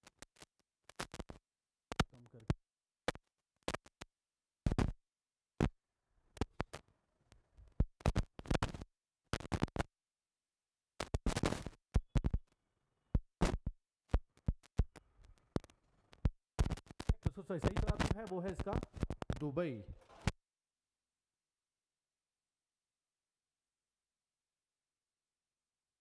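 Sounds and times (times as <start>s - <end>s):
scratchy rustling bursts: 11.0s - 12.4s, 16.6s - 20.3s.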